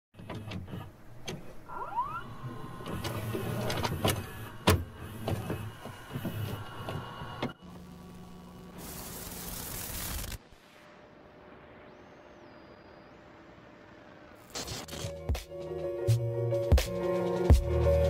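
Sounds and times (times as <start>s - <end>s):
mechanical clicks and clunks: 0.2s - 7.6s
motor whirring: 0.2s - 10.4s
short rising whine: 5.7s - 15.0s.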